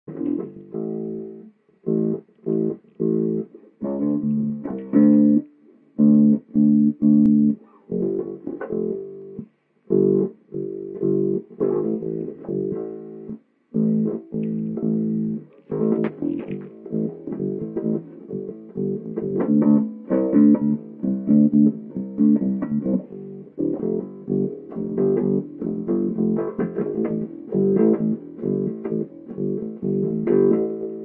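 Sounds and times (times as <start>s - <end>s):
electric bass plucked fingerstyle: 0.1s - 31.0s.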